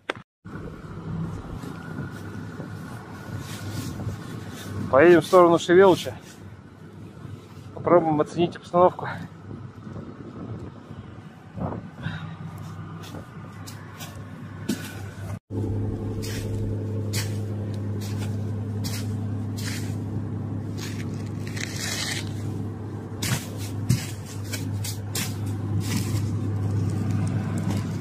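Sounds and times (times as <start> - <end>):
motor hum: 15.5 - 28.0
crunches and scrapes: 16.1 - 28.0.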